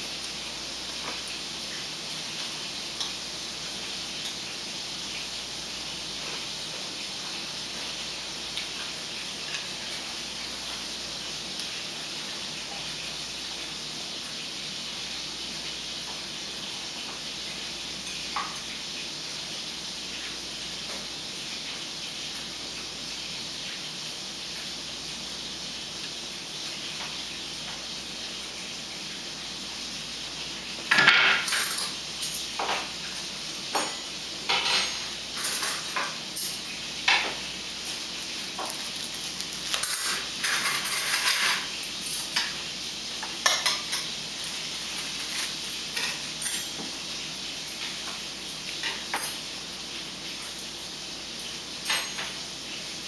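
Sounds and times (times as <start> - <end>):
utensils clinking on bowls: 30.9 - 32.9, 33.7 - 42.6, 43.2 - 47.0, 47.6 - 52.5.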